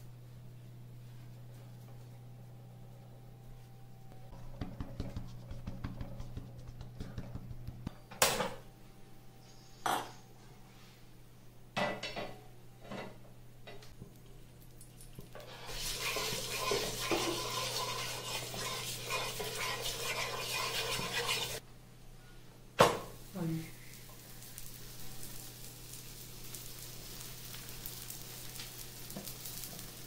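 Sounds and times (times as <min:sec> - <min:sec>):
hot oil sizzling on a pan: 0:15.0 - 0:21.6, 0:22.9 - 0:30.0
kitchen utensils clattering: 0:15.4 - 0:21.6.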